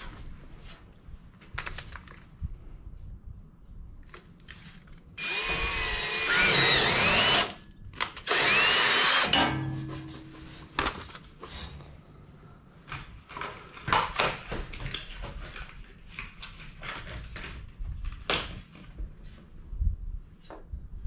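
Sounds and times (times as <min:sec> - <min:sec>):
cordless drill boring: 0:05.2 - 0:07.6, 0:08.2 - 0:09.4.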